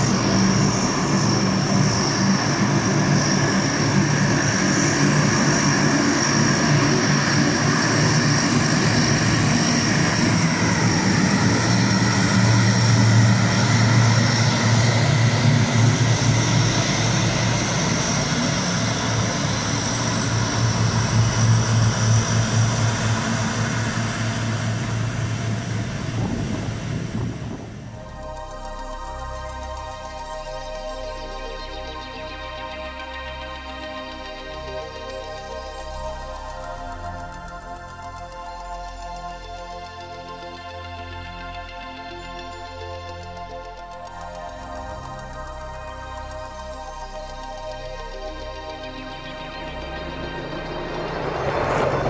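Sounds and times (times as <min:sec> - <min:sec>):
high engine whine: 0:00.0 - 0:30.6, 0:44.5 - 0:52.0
turboprop engines droning: 0:00.0 - 0:52.0.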